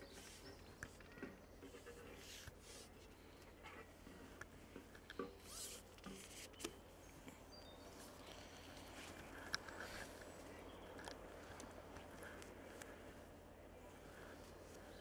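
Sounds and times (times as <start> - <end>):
faint clicks: 8.3 - 13.0.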